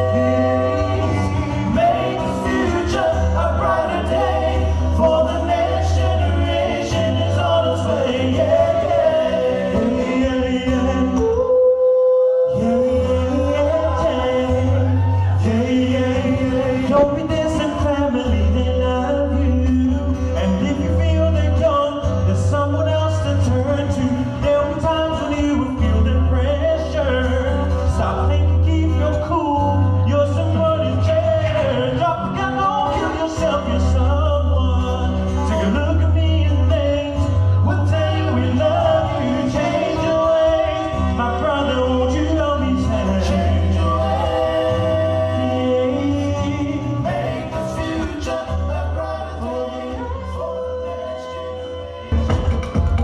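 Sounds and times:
men singing through a pa: 0.0s - 11.5s, 12.5s - 21.2s, 30.0s - 51.8s
music with deep bass line: 0.0s - 11.5s, 12.5s - 53.0s.

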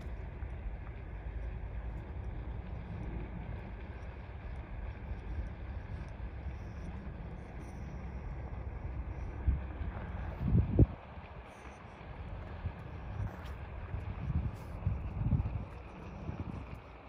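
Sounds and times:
wind buffeting microphone: 8.8s - 17.0s.

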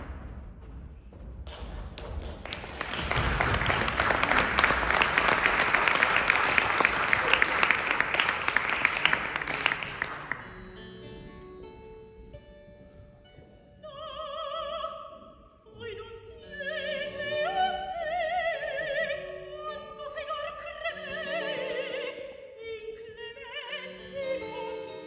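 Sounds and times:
audience applauding: 2.0s - 10.5s.

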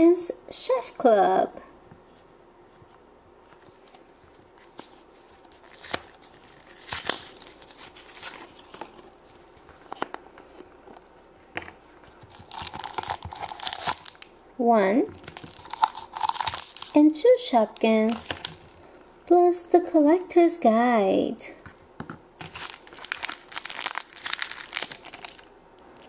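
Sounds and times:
crinkly wrapper rustling: 3.5s - 11.2s, 11.8s - 14.4s, 15.1s - 19.2s, 22.4s - 26.0s.

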